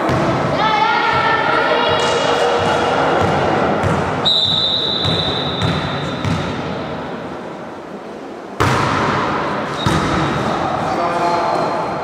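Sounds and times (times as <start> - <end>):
echoing sports hall noise: 0.0 - 12.0
volleyball serve slap: 8.6 - 10.3.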